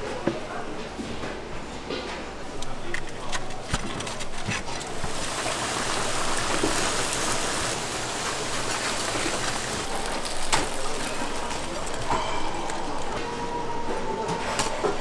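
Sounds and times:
hot oil sizzling: 4.9 - 12.1.

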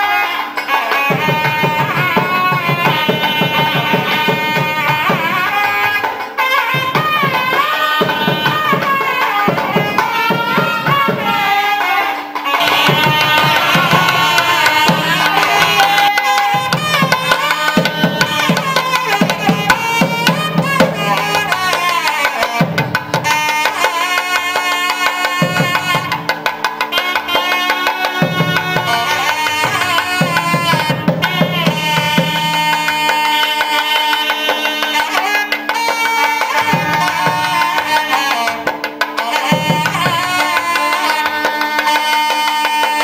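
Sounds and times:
nadaswaram playing gliding melody: 0.0 - 43.0
rapid thavil drum strokes: 1.0 - 23.9.

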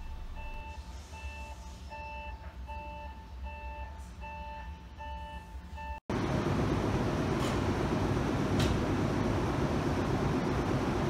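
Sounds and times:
electronic warning beeps: 0.0 - 6.0
low hum of standing train: 0.0 - 11.0.

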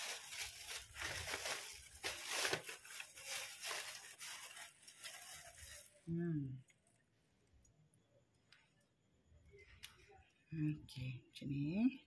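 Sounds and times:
ribbon and wrapping crinkling: 0.0 - 7.0.

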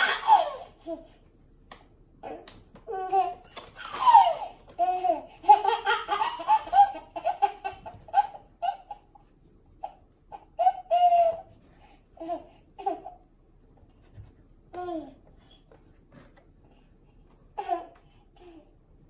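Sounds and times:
baby laughing: 0.0 - 1.1, 2.9 - 11.5.

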